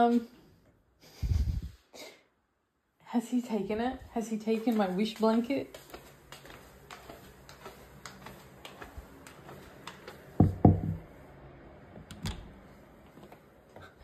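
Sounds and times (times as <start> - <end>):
heavy dull thumps: 10.4 - 11.1.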